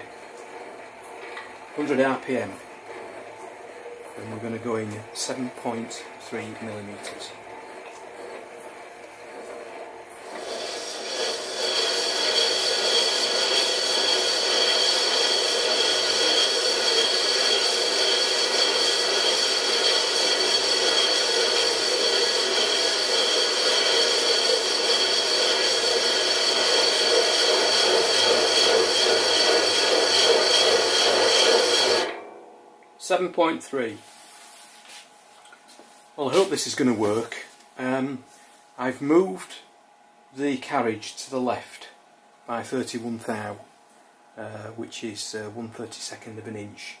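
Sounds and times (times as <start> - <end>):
lathe tool rasping scrape: 0.0 - 32.2
high whine: 3.3 - 33.9.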